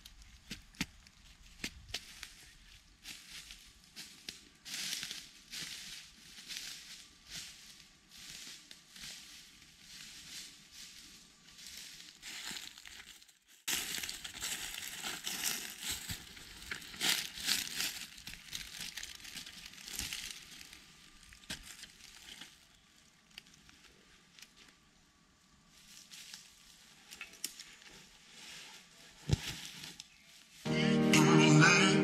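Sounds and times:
crunching and rustling: 0.0s - 24.9s.

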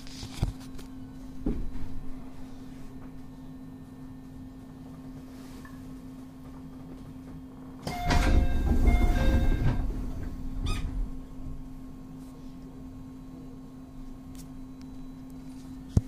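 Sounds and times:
steady low hum: 0.0s - 16.0s
door chime: 7.8s - 10.2s
sliding doors closing with air rush: 7.8s - 11.6s.

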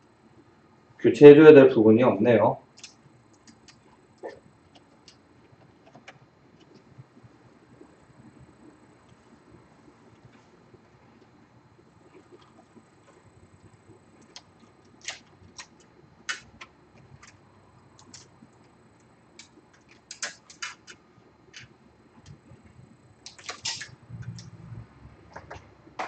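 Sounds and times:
small parts clicking and tapping: 18.0s - 22.4s.

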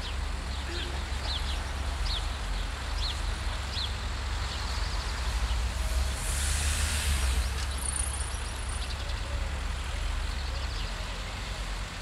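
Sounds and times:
diesel railcar rumbling: 0.0s - 12.0s
hiss: 5.8s - 7.6s.

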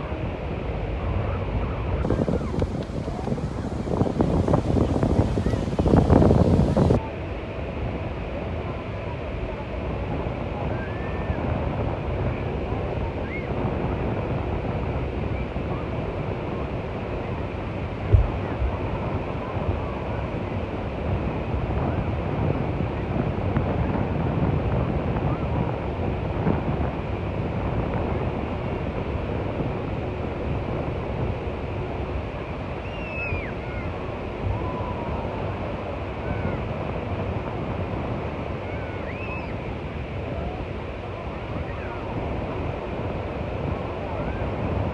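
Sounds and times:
waves breaking on beach: 0.0s - 44.9s
wind on microphone: 0.0s - 44.9s
brief low thump: 18.1s - 18.7s.

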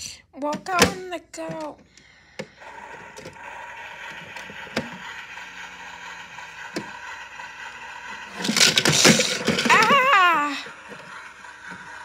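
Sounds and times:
toy motor whirring: 0.7s - 12.0s
toy car knocking inside drum: 2.4s - 12.0s.

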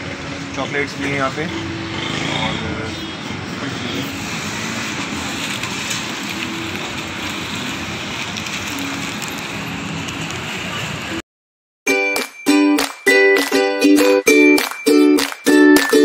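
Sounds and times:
steady background noise: 0.0s - 11.2s.

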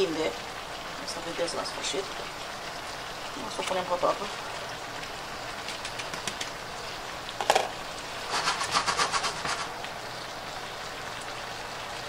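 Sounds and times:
skillet rattling on cooktop: 7.4s - 9.7s
food sizzling in a skillet: 7.4s - 9.8s.

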